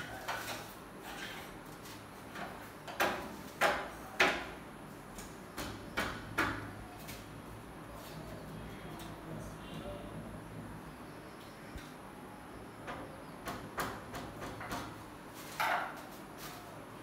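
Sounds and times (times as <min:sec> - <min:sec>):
knocks on a window frame: 0:12.9 - 0:15.0.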